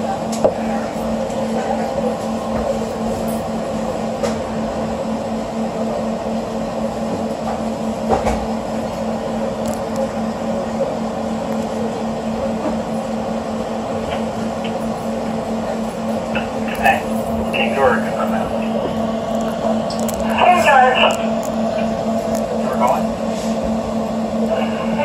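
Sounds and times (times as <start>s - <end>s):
train car steady hum: 0.0s - 25.0s.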